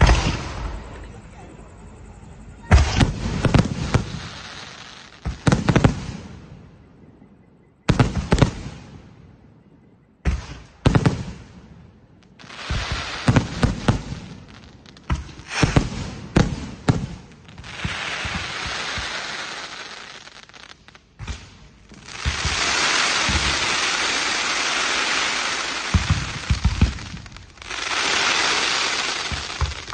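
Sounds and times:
firework bangs: 0.0s - 1.4s, 2.6s - 6.6s, 7.9s - 9.1s, 10.2s - 11.8s, 12.4s - 29.9s
fizzing crackle of fireworks: 0.0s - 6.8s, 7.9s - 9.3s, 10.2s - 29.9s.

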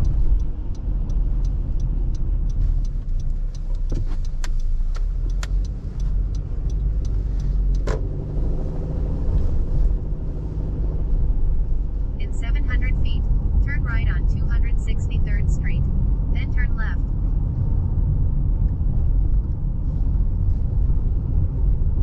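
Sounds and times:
sharp clicks: 0.0s - 8.1s
engine and road noise rumble: 0.0s - 22.0s.

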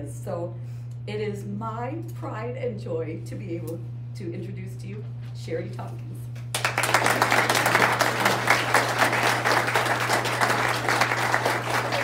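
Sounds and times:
audience applauding: 6.5s - 12.0s.

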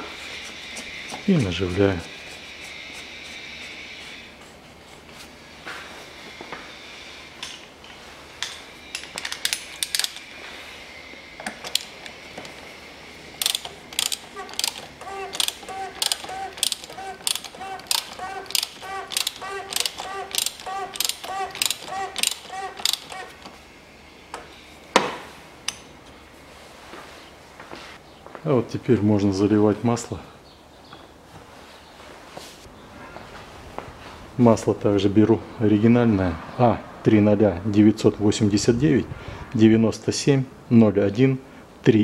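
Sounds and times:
ratchet wrench clicking: 9.0s - 10.3s, 13.4s - 23.4s.

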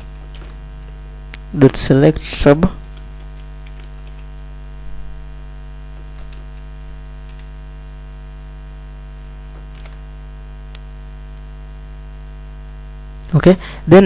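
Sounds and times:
electrical mains hum: 0.0s - 14.0s
computer keyboard clicks: 0.2s - 0.6s, 2.9s - 4.3s, 6.2s - 7.5s, 9.7s - 10.0s.

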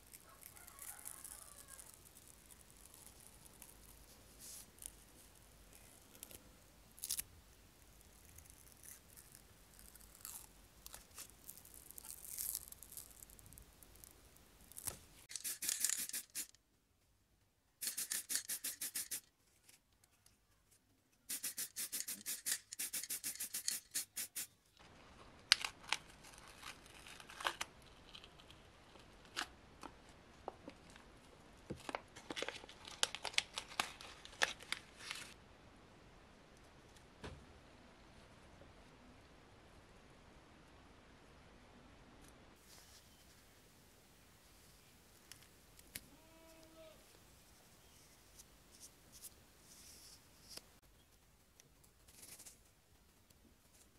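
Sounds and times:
paper crinkling: 21.4s - 29.5s, 31.8s - 35.4s.

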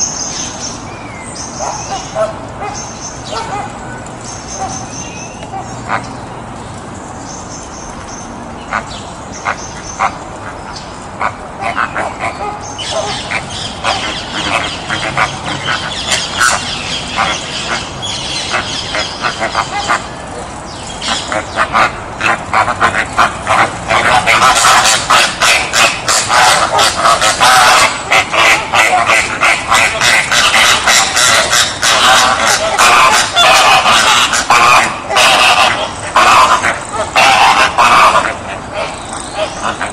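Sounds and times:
flamingos honking: 8.6s - 39.9s.

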